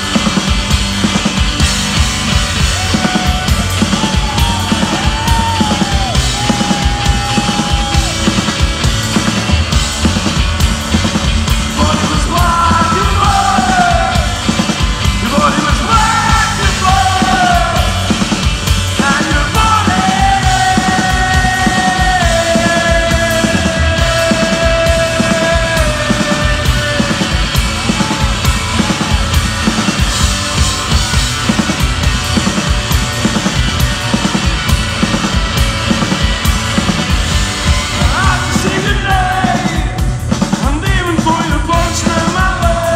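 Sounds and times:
live rock band playing: 0.0 - 42.9
man shouting singing: 11.8 - 14.4, 15.2 - 18.1, 19.0 - 29.2, 38.0 - 40.0, 40.6 - 42.9.

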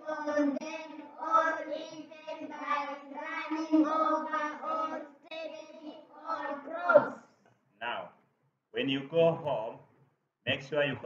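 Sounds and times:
children reading aloud in unison: 0.0 - 7.3.

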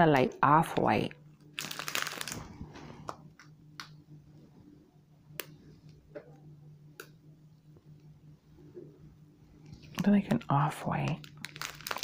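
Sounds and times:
low steady hum: 0.0 - 12.0
plastic packets crinkling: 1.4 - 2.5, 11.1 - 12.0.

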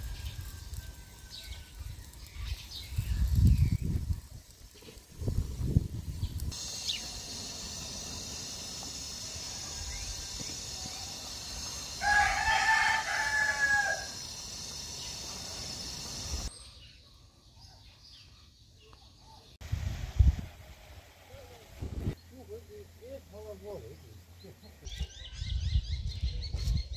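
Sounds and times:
steady high hiss: 0.0 - 16.6, 19.6 - 25.0
rooster crowing: 9.2 - 15.0.

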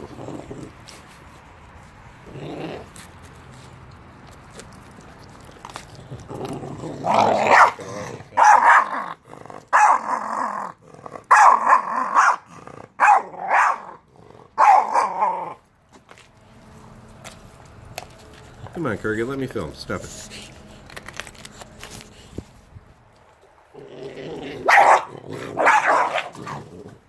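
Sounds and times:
puppies growling: 0.0 - 15.7, 23.7 - 27.0.

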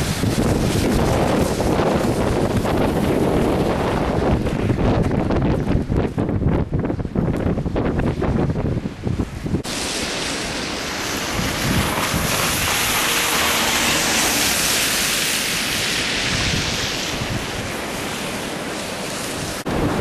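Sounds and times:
tyres hissing on wet road: 0.0 - 4.2, 9.6 - 19.7
wind buffeting microphone: 0.0 - 20.0
van passing: 9.7 - 17.0.

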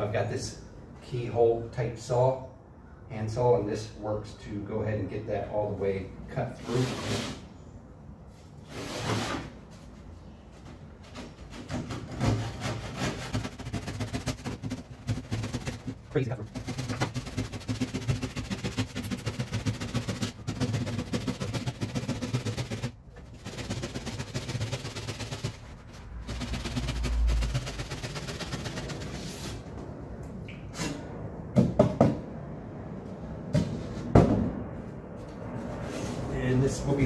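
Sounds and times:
hand saw cutting foam panel: 11.0 - 29.5.

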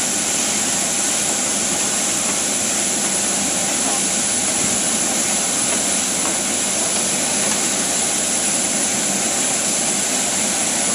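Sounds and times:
jet turbine hiss and whine: 0.0 - 10.9.

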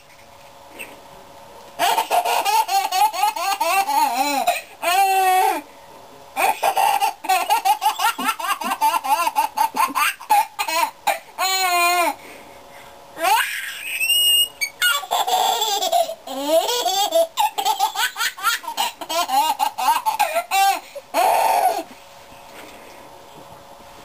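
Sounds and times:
baby laughing: 1.8 - 5.6, 6.4 - 12.2, 13.2 - 21.9.

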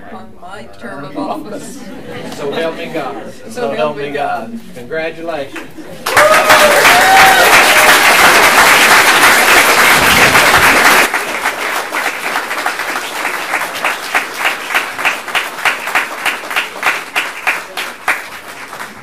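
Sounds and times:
audience applauding: 6.0 - 19.0.

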